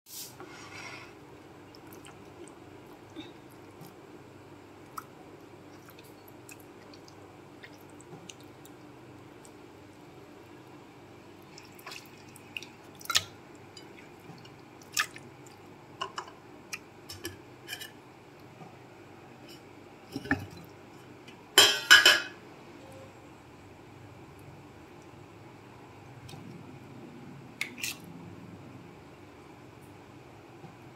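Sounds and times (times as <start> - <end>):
wet meat squishing: 4.8 - 9.6, 14.0 - 15.6.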